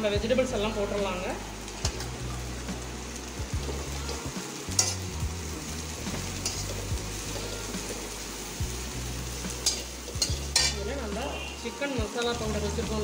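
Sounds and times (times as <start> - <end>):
vegetables sizzling in oil: 0.0 - 13.0
metal spatula scraping a wok: 4.7 - 5.1, 6.1 - 8.1, 9.5 - 10.9.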